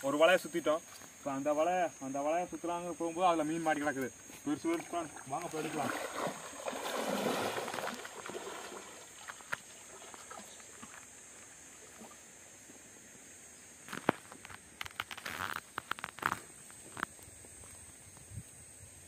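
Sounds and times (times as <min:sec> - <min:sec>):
water sloshing from wading: 0:03.9 - 0:12.4
sharp splashes of fishing net: 0:04.6 - 0:10.9.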